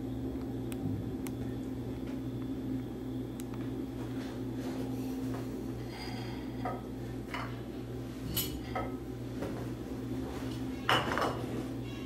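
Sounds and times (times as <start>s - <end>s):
steady low hum: 0.0s - 12.0s
crockery clinking and knocking: 10.9s - 11.4s.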